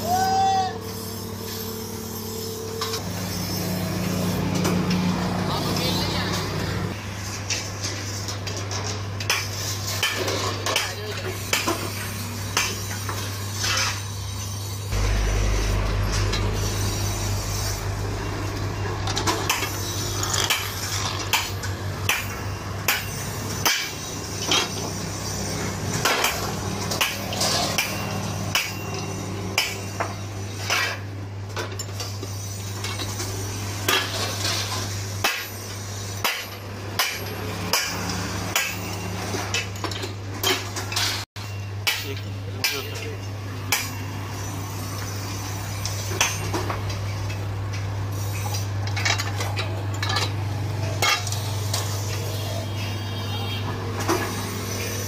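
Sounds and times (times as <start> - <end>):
metallic clanks of shearing machine: 0.8 - 52.9, 53.6 - 55.0
steady low hum: 14.8 - 19.2.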